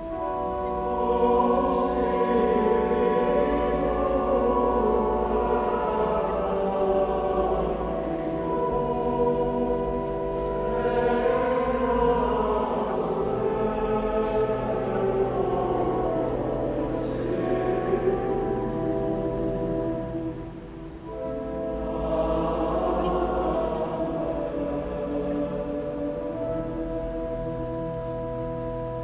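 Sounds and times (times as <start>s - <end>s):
men singing chant in church: 0.4s - 20.2s, 21.5s - 26.7s.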